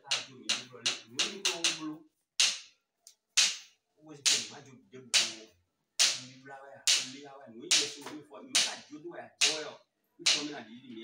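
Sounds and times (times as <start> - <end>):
man talking: 0.0 - 2.1, 4.0 - 5.6, 6.2 - 11.0.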